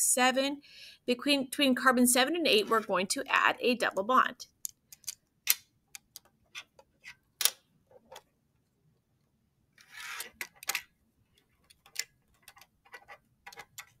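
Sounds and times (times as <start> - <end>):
magnetic model pieces clicking: 4.6 - 6.8, 11.6 - 14.0.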